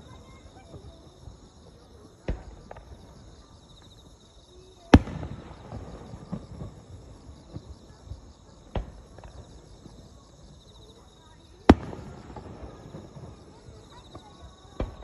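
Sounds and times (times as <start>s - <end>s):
field insects chirping: 0.0s - 15.0s
distant firework bangs: 2.1s - 3.8s, 4.8s - 10.6s, 11.4s - 15.0s.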